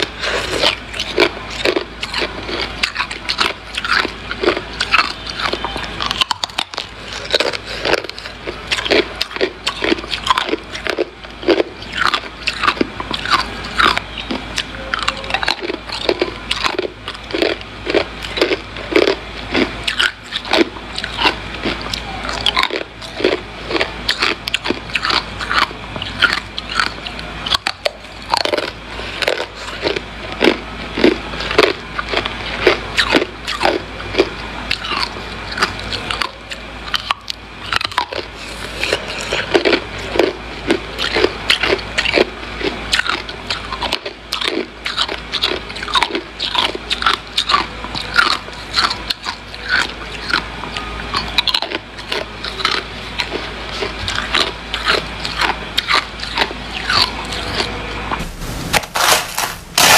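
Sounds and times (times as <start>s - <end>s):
person crunching ice: 0.0s - 14.0s, 58.7s - 59.9s.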